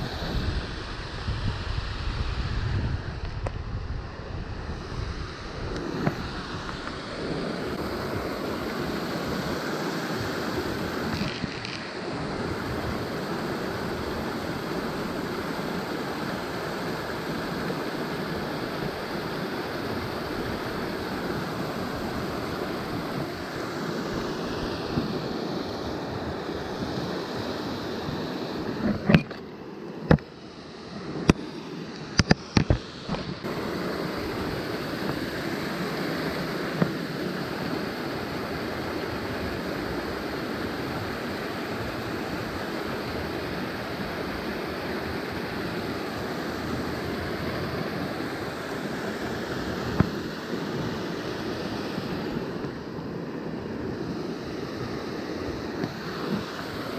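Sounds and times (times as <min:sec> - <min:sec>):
water rushing over a weir: 0:00.0 - 0:56.9
sharp clicks and knocks: 0:32.0 - 0:33.4.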